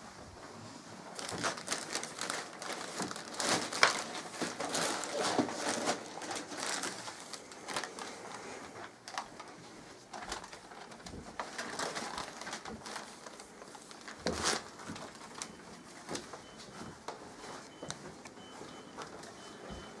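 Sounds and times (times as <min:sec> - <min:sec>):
wrapping paper crinkling: 0:01.0 - 0:19.7.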